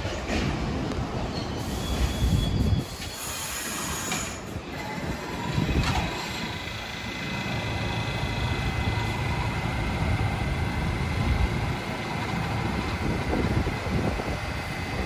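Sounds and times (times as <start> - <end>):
subway train rumble: 0.0 - 15.0
high-pitched wheel squeal: 1.2 - 6.4.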